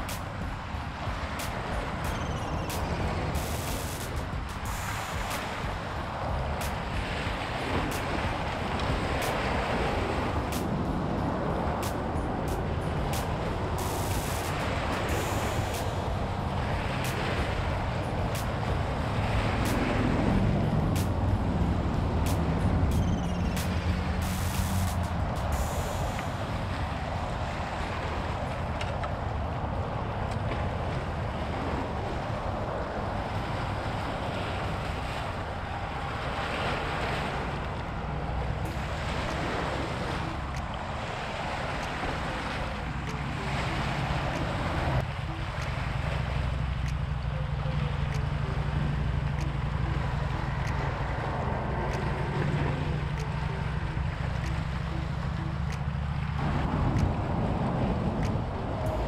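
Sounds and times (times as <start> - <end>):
waves washing on rocks: 0.0 - 59.0
wind: 0.0 - 59.0
low hum: 10.2 - 28.0.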